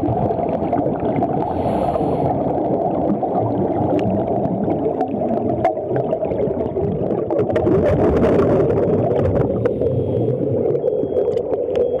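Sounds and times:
bubbling exhaled air: 0:00.0 - 0:12.0
muffled underwater rumble: 0:00.0 - 0:12.0.

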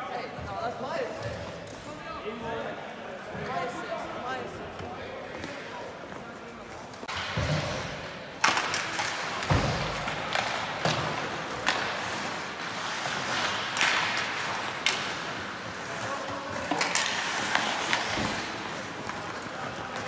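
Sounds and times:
skates scraping ice: 0:05.4 - 0:20.0
hockey sticks and puck clacking: 0:06.8 - 0:20.0.

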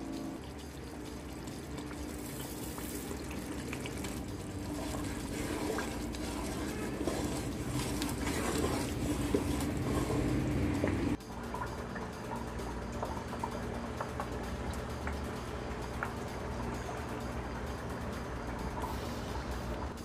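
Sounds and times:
curry bubbling in a pot: 0:00.0 - 0:11.2
metal spoon stirring: 0:02.2 - 0:10.6.

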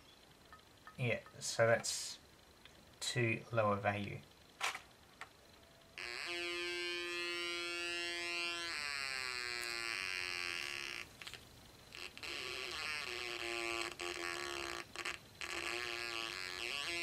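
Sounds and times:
electronic siren buzzing: 0:05.7 - 0:11.1.

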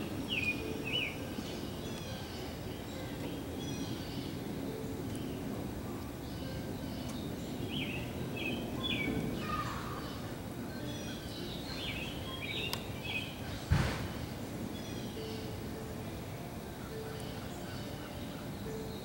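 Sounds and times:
outdoor background noise: 0:00.0 - 0:19.0
small birds chirping: 0:00.0 - 0:19.0
sudden thump: 0:13.7 - 0:14.2.

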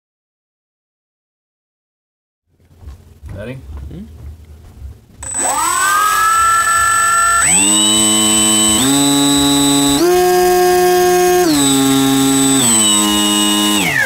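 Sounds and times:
thin high tone: 0:05.2 - 0:09.9
electric motor propeller whine: 0:05.2 - 0:14.0.

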